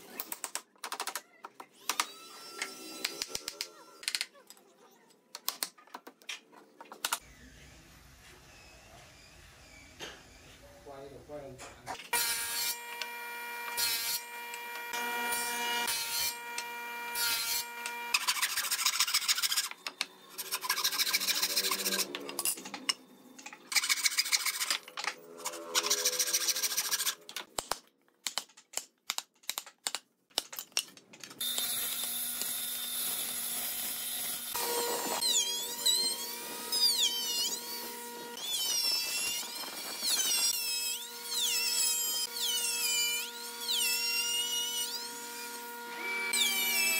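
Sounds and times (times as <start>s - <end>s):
electric router whining: 12.2s - 18.2s, 31.4s - 40.5s.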